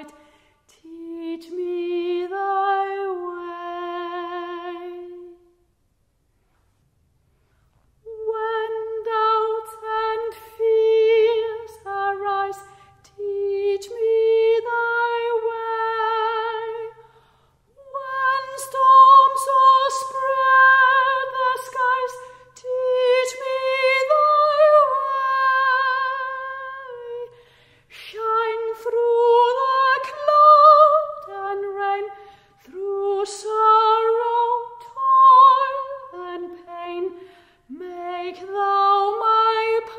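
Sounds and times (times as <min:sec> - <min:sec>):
woman singing a hymn unaccompanied: 0:00.0 - 0:05.5, 0:08.0 - 0:39.9.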